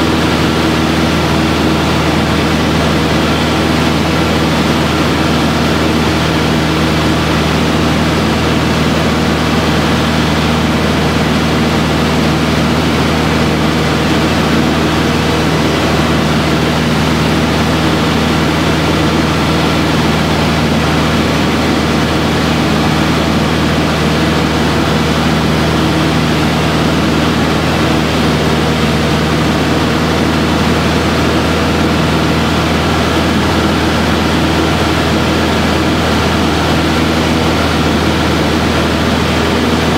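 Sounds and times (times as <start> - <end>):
propeller plane engine drone: 0.0 - 39.9
airflow hum: 10.7 - 39.9.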